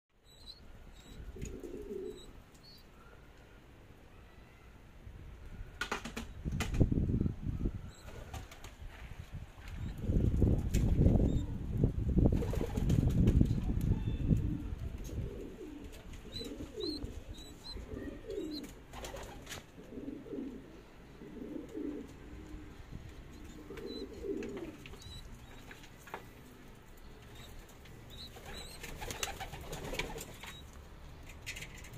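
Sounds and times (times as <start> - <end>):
pigeons cooing: 0.4 - 2.9, 14.3 - 26.4, 27.1 - 30.7.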